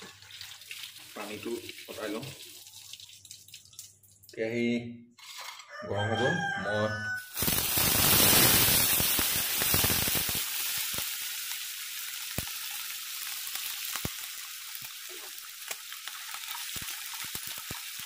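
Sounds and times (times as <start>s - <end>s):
meat sizzling in hot oil: 7.0s - 18.0s.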